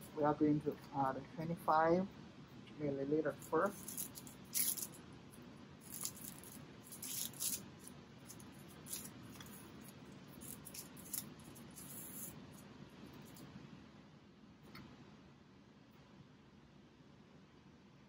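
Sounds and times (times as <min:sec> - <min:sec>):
plastic wrapper crinkling and tearing: 0:03.7 - 0:05.0, 0:05.8 - 0:09.6, 0:10.3 - 0:12.3.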